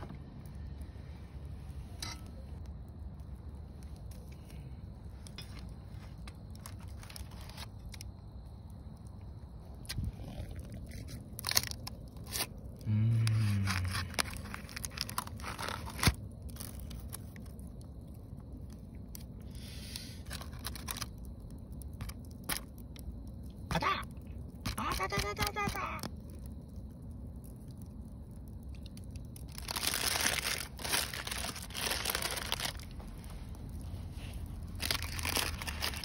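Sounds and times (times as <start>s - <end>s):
parchment paper crinkling: 6.5s - 8.0s, 13.2s - 17.4s, 20.2s - 21.2s, 29.5s - 36.0s.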